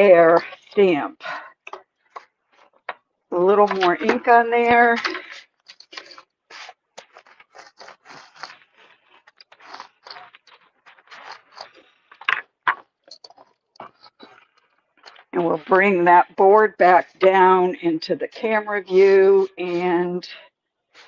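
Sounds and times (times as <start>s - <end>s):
ink roller scraping: 3.4s - 8.8s, 18.4s - 20.4s.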